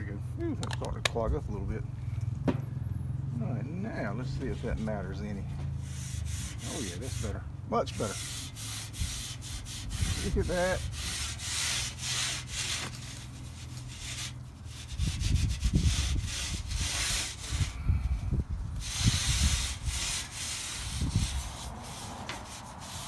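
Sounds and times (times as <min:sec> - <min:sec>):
scouring pad scrubbing metal: 0:05.8 - 0:17.7, 0:18.8 - 0:23.0.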